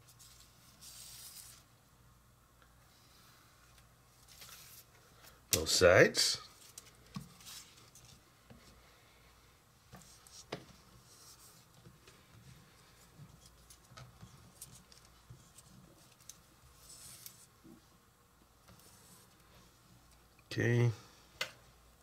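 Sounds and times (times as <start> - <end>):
parchment paper rustling on board: 0.0 - 1.7, 6.5 - 8.8, 9.9 - 17.8, 18.6 - 19.7.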